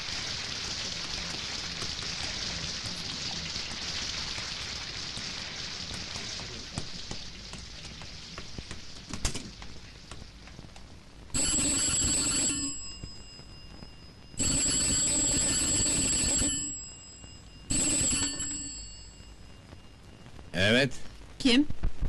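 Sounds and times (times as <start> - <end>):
telephone bell ringing: 11.3 - 20.0.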